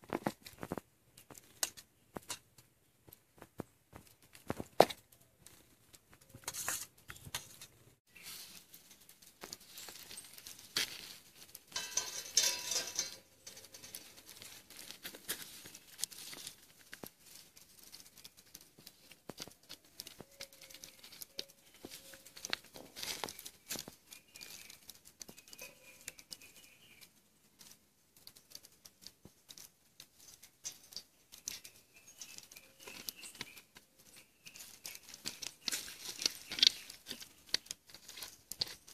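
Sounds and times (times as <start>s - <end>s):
rustling: 0.0s - 38.9s
utensils clicking and tapping: 9.4s - 17.1s.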